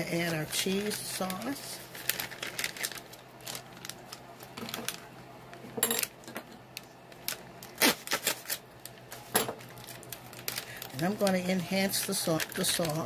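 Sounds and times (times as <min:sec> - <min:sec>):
scissors snipping foil packets: 0:06.8 - 0:09.2, 0:09.8 - 0:13.0.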